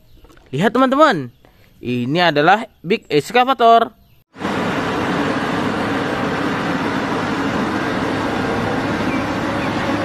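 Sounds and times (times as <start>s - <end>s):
excavator diesel engine humming: 4.4s - 10.0s.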